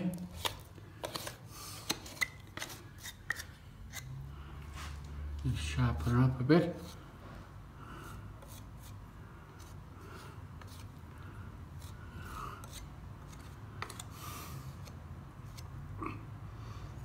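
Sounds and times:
trowel scraping cement: 0:11.8 - 0:15.6.

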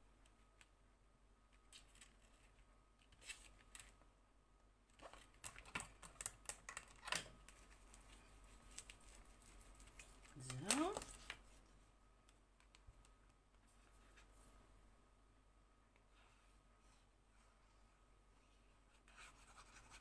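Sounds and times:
paper rustling: 0:01.6 - 0:03.9, 0:04.9 - 0:11.7.

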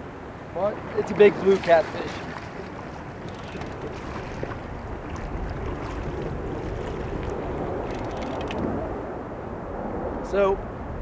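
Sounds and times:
river water lapping: 0:00.0 - 0:09.2
wind on microphone: 0:00.0 - 0:11.0
fish splashing at surface: 0:01.4 - 0:08.8.

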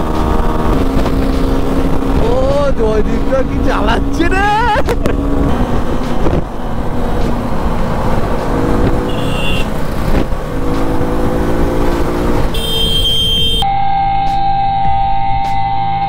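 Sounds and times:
motorcycle engine running: 0:00.0 - 0:13.0
music: 0:13.7 - 0:16.0.

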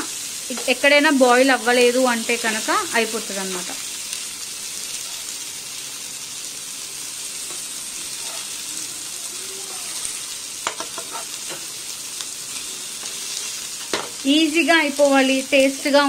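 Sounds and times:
fish sizzling in a pan: 0:00.0 - 0:16.0
metal spatula scraping a pan: 0:10.0 - 0:11.7.

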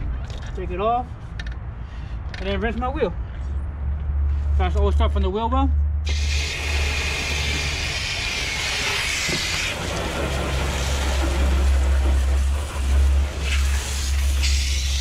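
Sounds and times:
hose water spraying on a wheel: 0:06.1 - 0:15.0.

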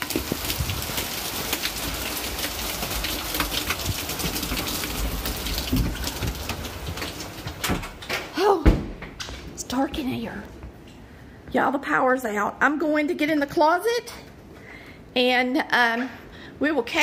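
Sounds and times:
heavy rain pouring: 0:00.0 - 0:08.6.

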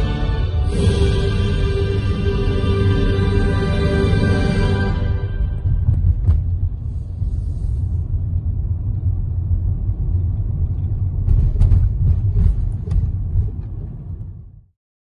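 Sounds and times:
car road and engine rumble: 0:00.0 - 0:14.8.

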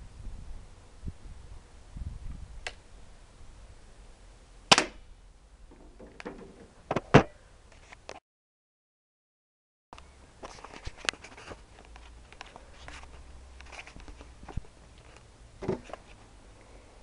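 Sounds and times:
air pistol shots: 0:04.7 - 0:05.0
plastic jug hit and tipping over: 0:05.7 - 0:07.3.

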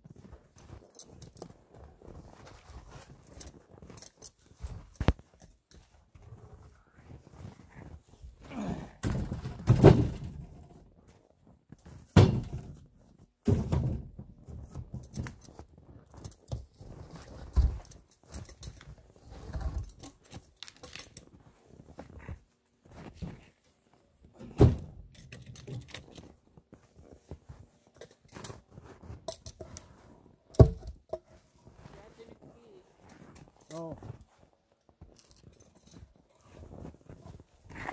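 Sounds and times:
rustling and shuffling in snow: 0:00.0 - 0:08.4, 0:26.2 - 0:30.5, 0:31.2 - 0:35.4
logs thudding onto metal sled: 0:09.0 - 0:10.8, 0:11.9 - 0:12.8, 0:13.4 - 0:14.2.

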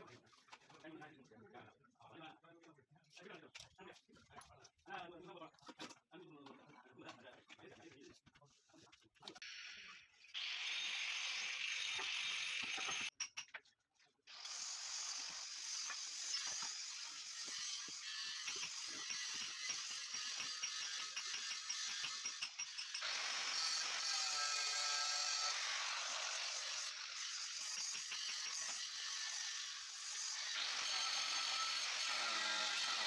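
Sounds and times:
electric stone cutter cutting: 0:10.4 - 0:13.1, 0:14.3 - 0:33.0.

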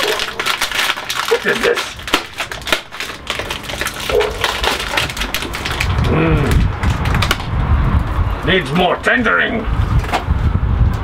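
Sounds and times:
plastic packaging crinkling: 0:00.0 - 0:07.5
low rumble: 0:03.1 - 0:08.6.

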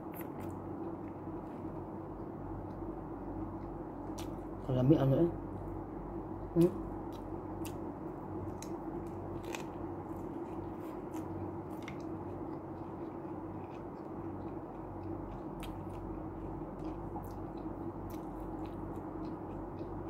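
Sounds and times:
steady low hum: 0:00.0 - 0:20.0
person chewing food: 0:06.6 - 0:20.0.

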